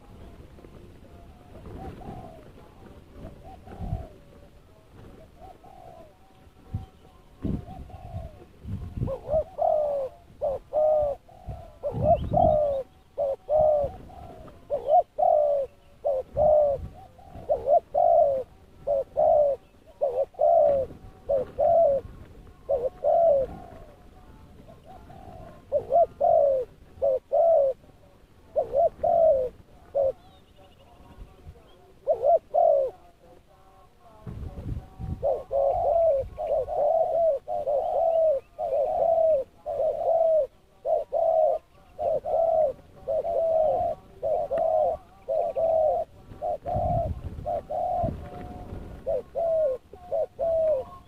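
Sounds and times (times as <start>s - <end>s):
dove cooing: 0.0s - 51.0s.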